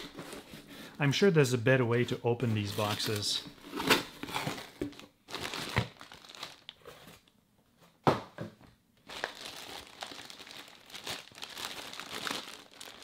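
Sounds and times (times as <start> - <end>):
plastic bag crinkling: 2.6 - 7.3, 9.0 - 13.0.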